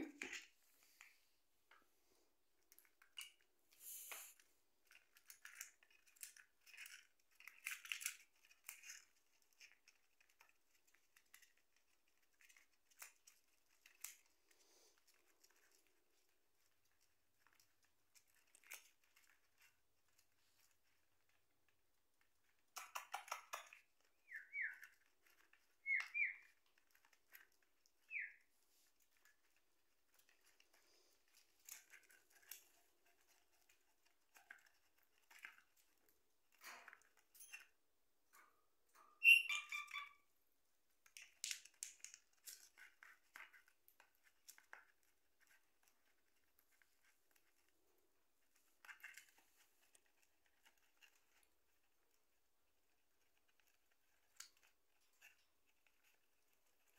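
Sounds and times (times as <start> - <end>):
parrots chirping: 22.9 - 25.0, 25.8 - 26.5, 28.1 - 28.4, 39.1 - 40.2.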